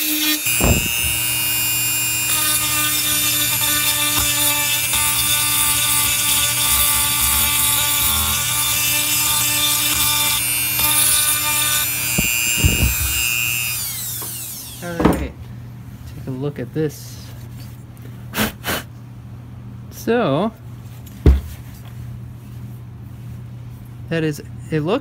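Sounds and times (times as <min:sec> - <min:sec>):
rotary tool grinding metal: 0:00.0 - 0:14.9.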